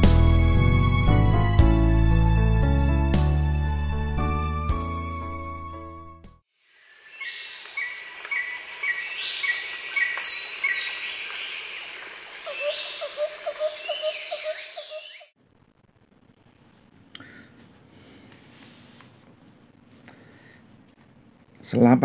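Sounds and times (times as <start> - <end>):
insect chorus: 6.6 - 15.4
birds chirping and calling: 7.1 - 15.3.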